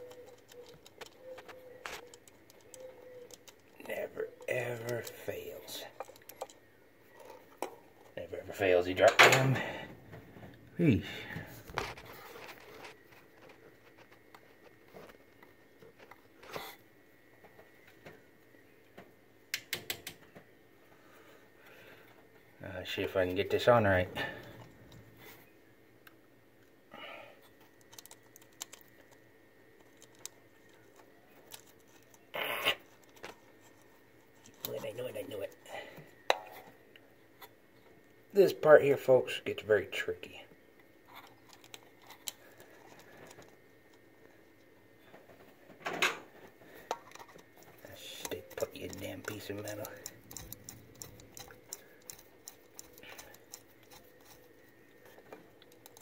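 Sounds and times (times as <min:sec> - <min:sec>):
low steady hum: 0:00.0 - 0:56.0
small metal parts clicking: 0:27.8 - 0:29.2, 0:46.9 - 0:54.6, 0:55.5 - 0:56.0.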